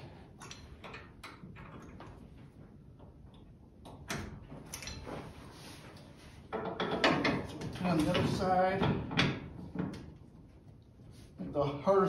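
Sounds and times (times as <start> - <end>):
faint metallic clicks and knocks: 0.4 - 2.3.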